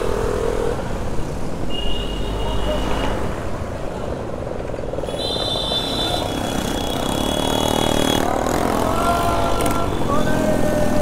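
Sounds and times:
traffic noise: 0.0 - 11.0
motorcycle running: 6.0 - 10.7.

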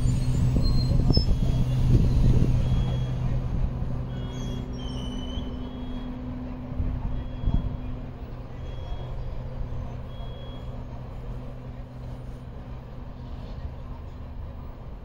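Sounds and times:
train rumbling on rails: 0.0 - 15.0.

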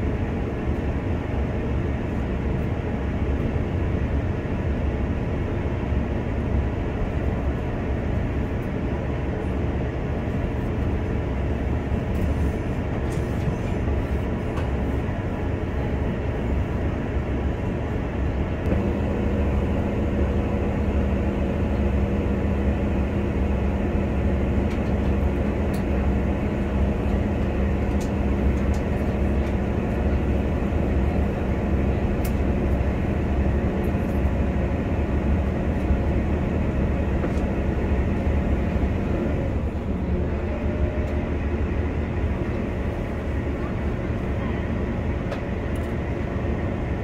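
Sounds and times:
train wheels rumbling on rails: 0.0 - 47.0
steady hum: 15.0 - 39.1.

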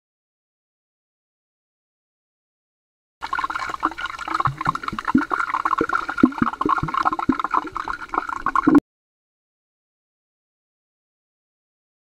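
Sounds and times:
bubbles popping underwater: 3.2 - 8.8
muffled underwater wash: 3.2 - 8.8.

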